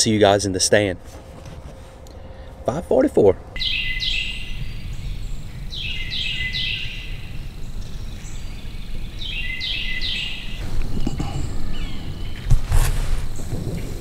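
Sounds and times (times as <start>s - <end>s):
steady low rumble: 0.0s - 14.0s
songbird whistling: 3.6s - 12.6s.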